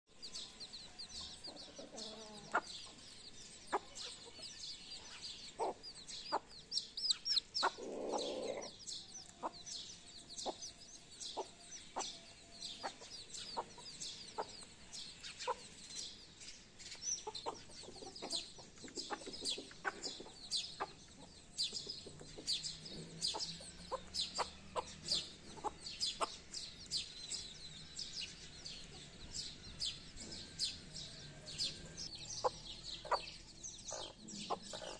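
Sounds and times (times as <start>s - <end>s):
chicks peeping: 0.2s - 34.9s
hen clucking: 1.2s - 14.7s, 17.2s - 26.6s, 31.6s - 34.9s.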